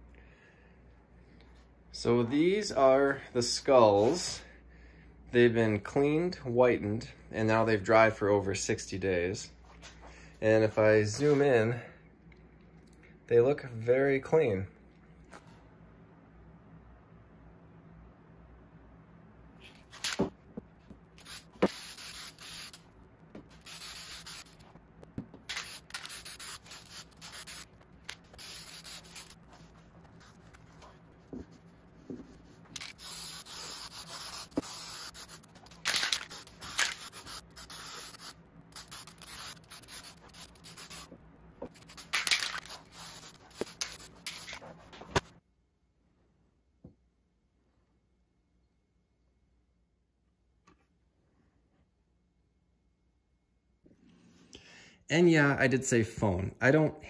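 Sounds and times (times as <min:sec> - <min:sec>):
aerosol spray hissing: 0:21.2 - 0:22.8, 0:23.5 - 0:24.6, 0:25.5 - 0:29.4, 0:32.8 - 0:41.1, 0:41.7 - 0:44.6.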